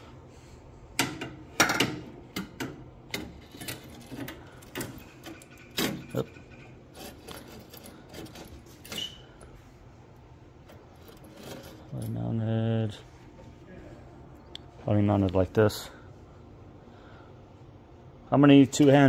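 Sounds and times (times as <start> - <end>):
metal clicks and knocks: 1.0 - 9.0.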